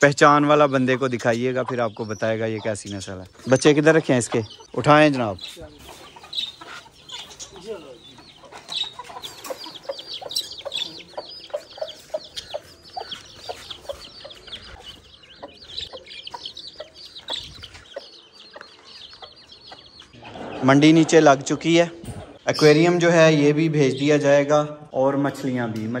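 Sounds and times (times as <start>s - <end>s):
chickens clucking: 0.0s - 24.3s
small birds chirping: 0.0s - 26.0s.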